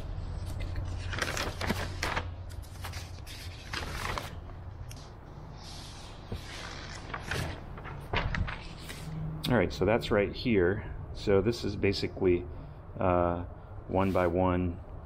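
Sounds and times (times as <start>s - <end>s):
paper sheets rustling: 0.1s - 9.2s.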